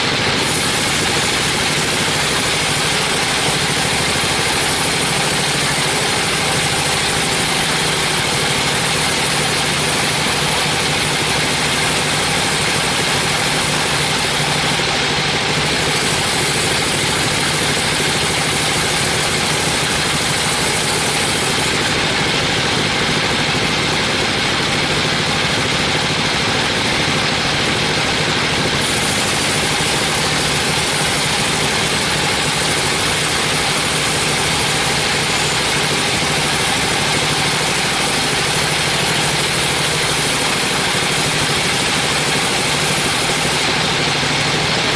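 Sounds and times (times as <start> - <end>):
machine hum: 0.0 - 44.9
bandsaw ripping wood: 0.3 - 14.8, 15.4 - 22.8, 28.8 - 44.4.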